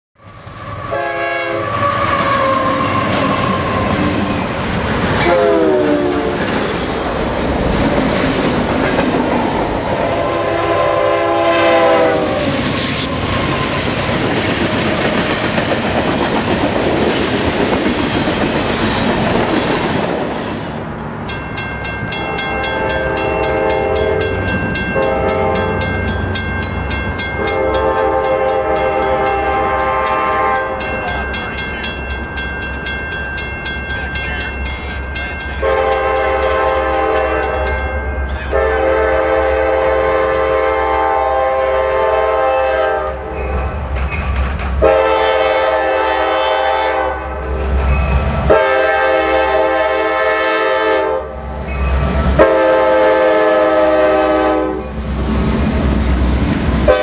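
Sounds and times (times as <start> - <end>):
locomotive air horn: 0.2 - 4.2, 5.2 - 6.5, 9.8 - 13.2, 22.8 - 24.3, 25.0 - 25.8, 27.4 - 30.8, 35.6 - 37.7, 38.4 - 43.4, 44.8 - 47.7, 48.5 - 51.4, 52.4 - 55.0
train rumble and wheel clatter: 0.2 - 57.0.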